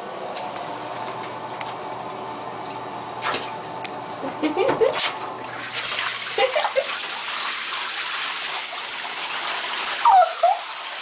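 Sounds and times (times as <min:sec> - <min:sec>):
shower spraying into bathtub: 0:04.9 - 0:11.0.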